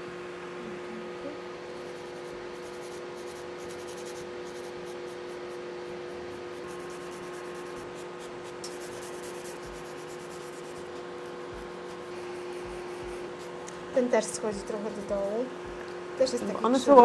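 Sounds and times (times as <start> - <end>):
dust collector fan humming: 0.0 - 17.0
nail file rasping on fingernails: 1.7 - 13.8, 14.7 - 15.4.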